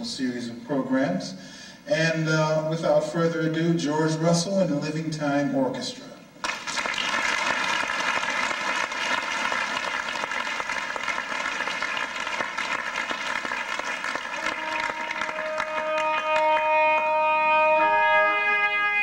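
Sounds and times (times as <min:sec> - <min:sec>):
audience applauding: 0:06.4 - 0:18.2
jazz orchestra long held notes: 0:14.0 - 0:19.0.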